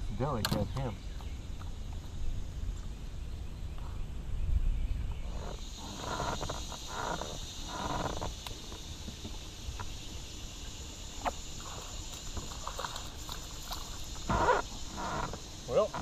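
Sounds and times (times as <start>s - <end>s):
wind rumble on microphone: 0.0s - 10.1s
insects chirping: 0.0s - 16.0s.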